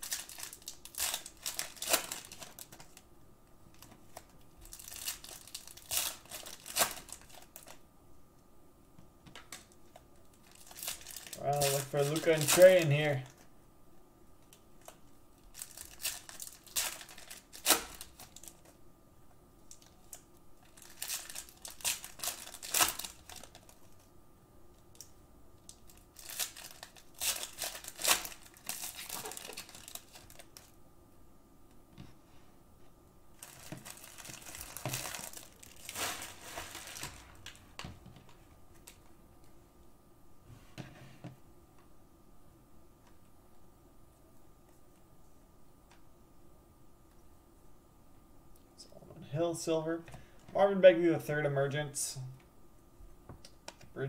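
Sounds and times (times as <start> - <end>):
cellophane wrappers crinkling: 0.0 - 3.1, 3.7 - 7.8, 9.5 - 13.5, 14.8 - 18.8, 19.7 - 24.1, 24.9 - 30.8, 33.3 - 37.6.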